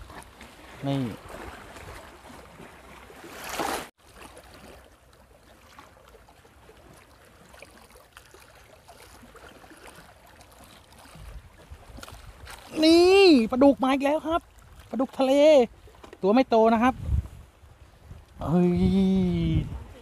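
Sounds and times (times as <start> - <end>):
small waves lapping on rocks: 0.0 - 18.7
water rush: 0.0 - 20.0.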